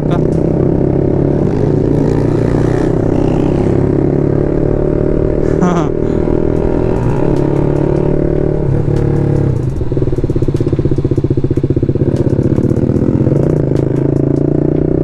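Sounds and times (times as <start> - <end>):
exhaust crackles: 0.0 - 14.5
motorcycle engine burbling: 0.0 - 15.0.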